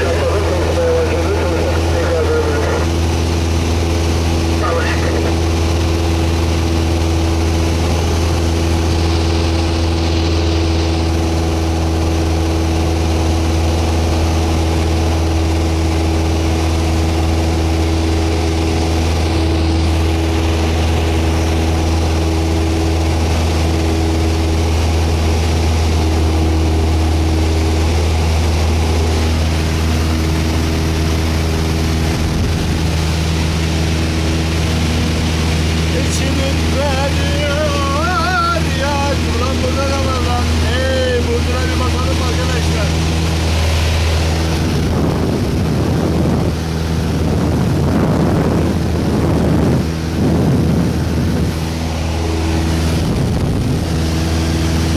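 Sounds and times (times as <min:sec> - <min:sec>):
light aircraft engine droning: 0:00.0 - 0:54.9.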